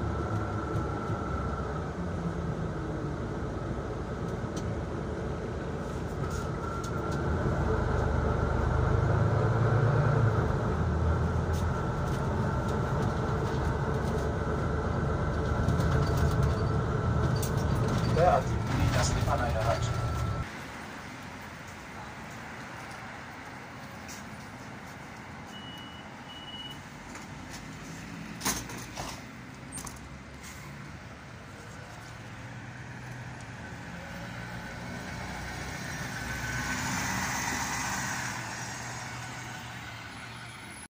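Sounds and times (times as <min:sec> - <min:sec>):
bus engine idling: 0:00.0 - 0:36.4
short high beeps: 0:25.5 - 0:26.8.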